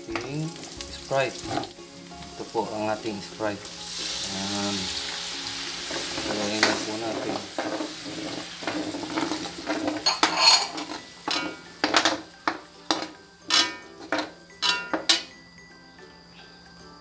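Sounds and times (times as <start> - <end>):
food sizzling in oil: 0.0 - 16.3
metal spatula scraping a wok: 5.6 - 15.3.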